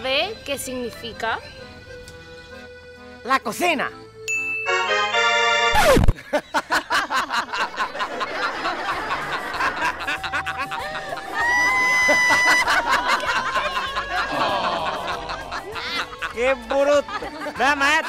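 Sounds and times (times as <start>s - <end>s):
people laughing: 6.1s - 18.0s.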